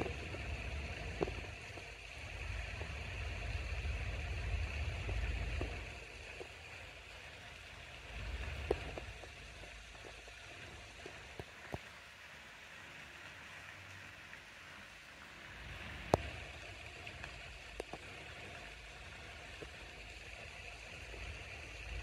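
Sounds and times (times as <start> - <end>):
wind rumble on microphone: 0.0 - 6.9
steady hiss: 0.0 - 22.0.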